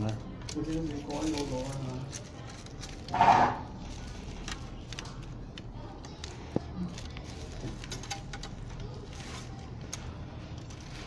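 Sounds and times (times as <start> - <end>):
rustles of cables and tape: 0.0 - 3.2, 3.8 - 11.0.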